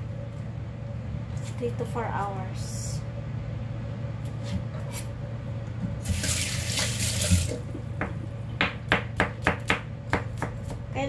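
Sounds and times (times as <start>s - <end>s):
knife chopping on plastic board: 8.0s - 10.9s.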